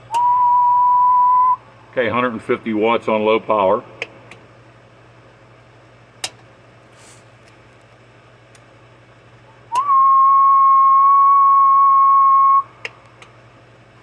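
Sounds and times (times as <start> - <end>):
low steady hum: 0.0 - 14.0
switch clicks: 6.2 - 6.4.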